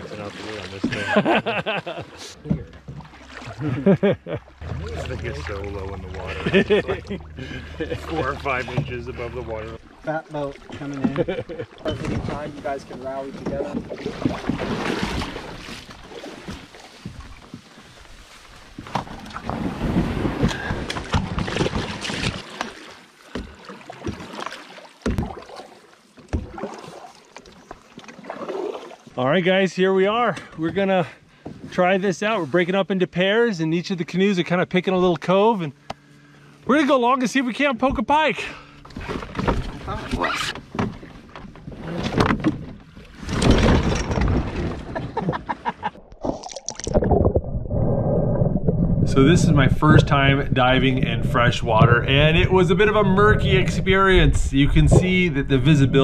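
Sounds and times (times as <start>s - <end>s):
water splashing along canoe hull: 0.0s - 29.3s, 30.4s - 32.6s, 37.8s - 56.0s
knocks against canoe hull: 25.0s - 25.4s.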